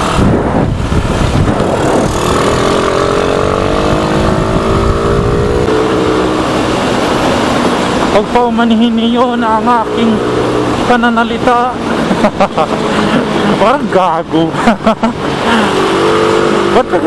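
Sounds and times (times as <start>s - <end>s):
motorcycle engine accelerating: 0.0s - 8.3s, 15.1s - 17.0s
wind rush on microphone: 0.0s - 14.0s.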